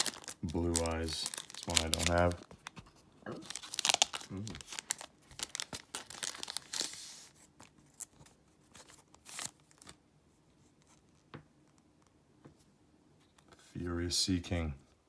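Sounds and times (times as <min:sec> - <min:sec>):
foil wrapper crinkling and tearing: 0:00.0 - 0:02.7, 0:03.4 - 0:08.2, 0:08.8 - 0:10.0.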